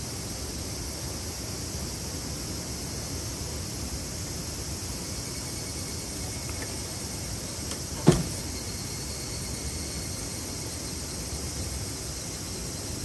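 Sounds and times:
steady background hiss: 0:00.0 - 0:13.0
sharp thump: 0:08.0 - 0:08.4.

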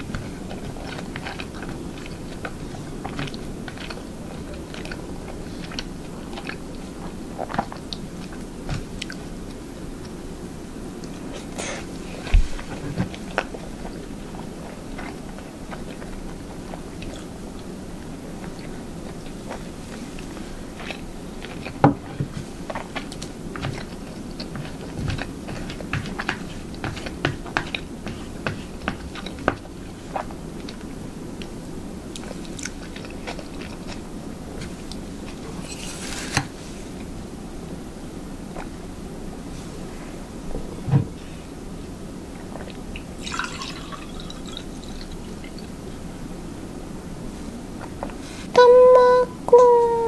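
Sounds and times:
chewing food: 0:00.0 - 0:10.2, 0:11.0 - 0:31.5, 0:32.1 - 0:35.6.

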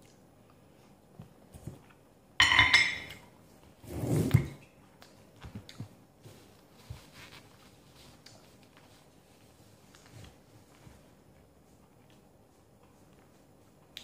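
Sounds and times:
ceramic dishes clinking: 0:02.4 - 0:03.2
dishware scraping on table: 0:02.4 - 0:03.2.

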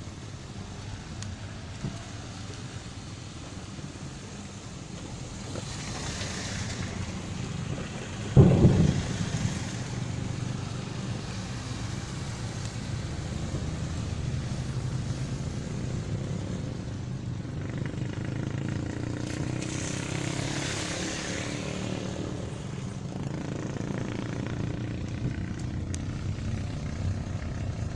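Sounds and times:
car engine and road hum: 0:00.0 - 0:27.9
loud thump: 0:08.3 - 0:10.0.

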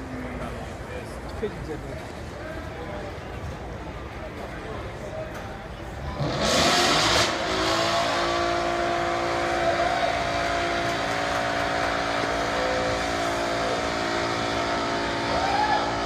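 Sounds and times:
car engine revving high: 0:06.1 - 0:16.0
spinning tyres: 0:06.2 - 0:16.0.

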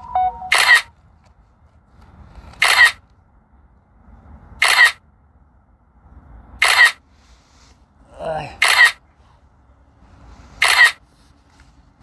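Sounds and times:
camera shutter clicks: 0:00.5 - 0:00.8, 0:02.6 - 0:03.0, 0:04.6 - 0:05.0, 0:06.6 - 0:07.0, 0:08.6 - 0:08.9, 0:10.6 - 0:11.0.

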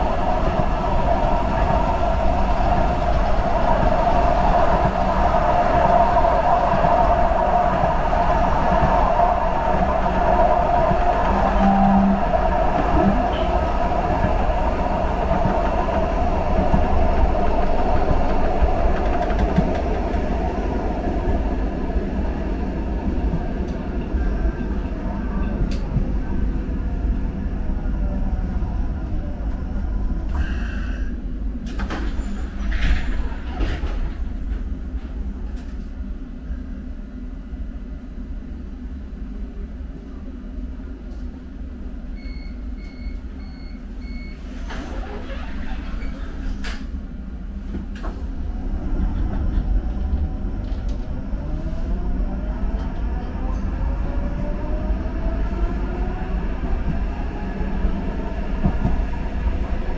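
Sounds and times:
train whine: 0:00.0 - 0:42.9, 0:46.7 - 0:59.9
subway train rumble: 0:00.0 - 0:59.9
electronic beeps: 0:11.5 - 0:12.3.

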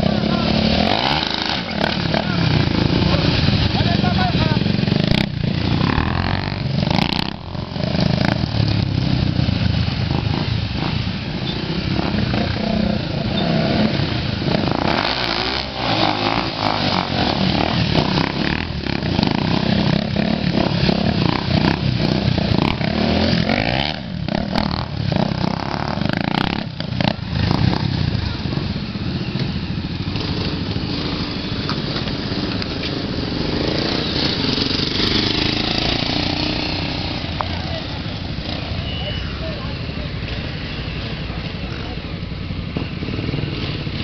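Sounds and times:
small motorcycles revving: 0:00.0 - 0:44.0.

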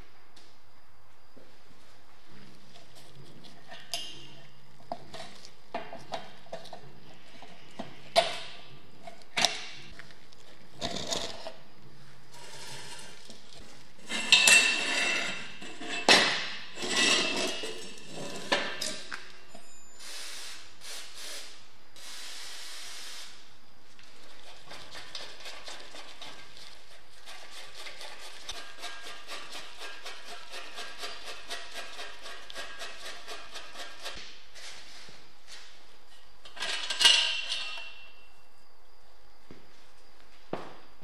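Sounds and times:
metal scraping: 0:12.3 - 0:19.0.

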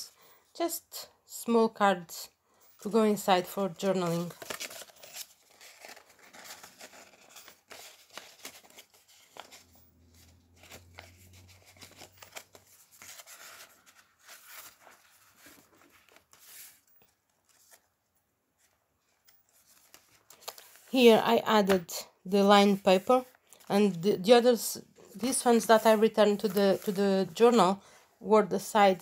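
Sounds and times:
paper pages rustling: 0:03.3 - 0:18.0, 0:18.6 - 0:24.0, 0:25.0 - 0:27.7.

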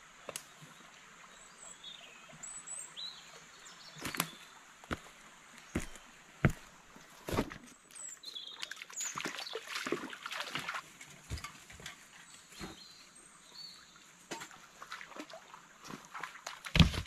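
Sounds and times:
footsteps on stones and leaves: 0:04.0 - 0:08.0, 0:16.7 - 0:17.0.

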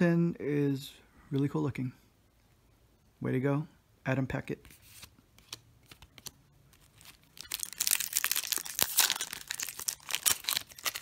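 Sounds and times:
foil wrapper tearing and crinkling: 0:06.2 - 0:11.0.

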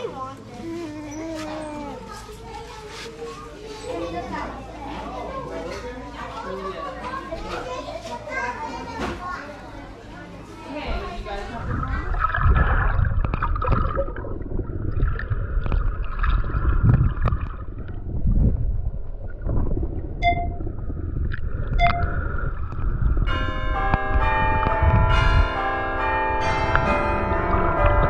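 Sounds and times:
low rumbling noise: 0:10.9 - 0:28.0
bell-like chimes ringing: 0:23.3 - 0:28.0.

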